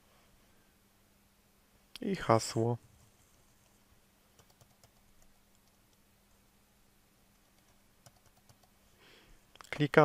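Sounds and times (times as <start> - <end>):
faint low hum: 0.0 - 10.0
computer keyboard keystrokes: 4.4 - 5.8, 7.6 - 8.7.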